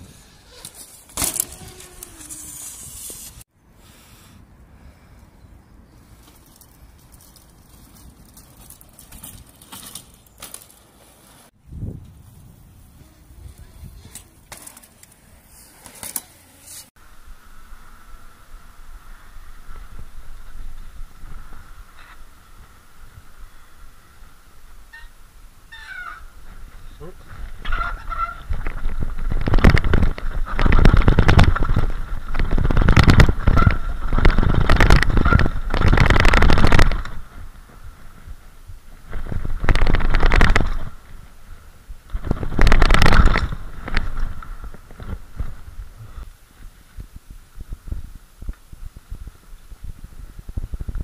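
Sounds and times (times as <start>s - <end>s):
bike rattling down steps: 0.5s - 3.2s, 6.2s - 11.3s.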